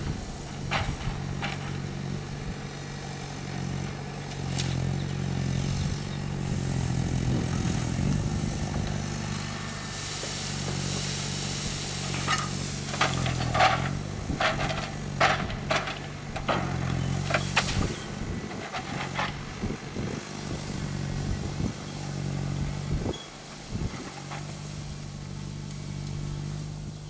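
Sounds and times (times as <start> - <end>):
diesel engine running: 0.0 - 27.0
branches cracking and snapping: 4.2 - 5.7, 6.3 - 21.8.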